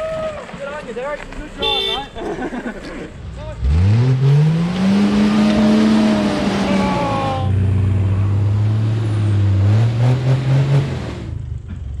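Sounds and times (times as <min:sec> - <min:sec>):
engine working under load: 0:03.0 - 0:12.0.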